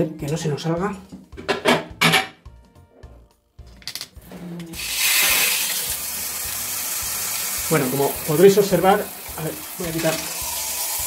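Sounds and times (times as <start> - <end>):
shower head spraying water: 4.8 - 11.0.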